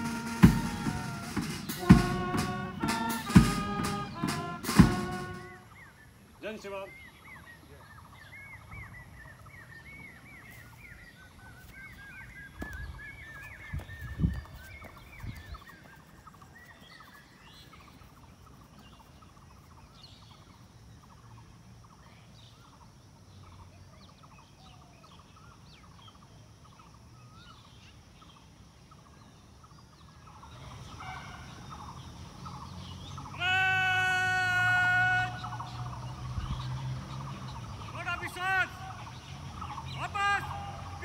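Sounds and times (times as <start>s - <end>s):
loud steady held note: 0.0s - 5.7s.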